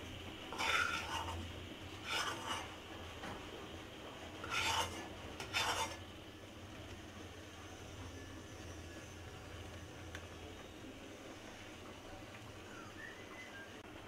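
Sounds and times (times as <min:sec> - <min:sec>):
faint steady hum: 0:00.0 - 0:14.0
steel bowl scraping: 0:00.5 - 0:02.8, 0:04.4 - 0:06.0.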